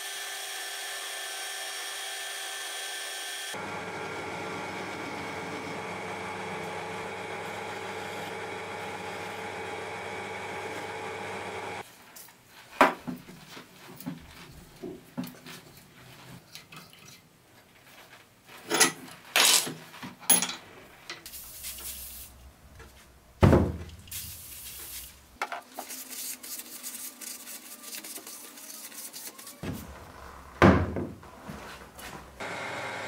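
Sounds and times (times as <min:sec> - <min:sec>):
metal parts clinking on workbench: 0:18.7 - 0:20.6
aerosol spray hissing: 0:24.1 - 0:25.2.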